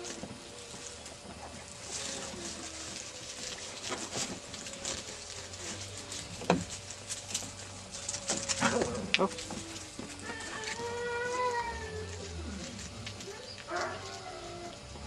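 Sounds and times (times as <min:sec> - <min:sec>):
puppies scampering through leaves: 0:00.0 - 0:15.0.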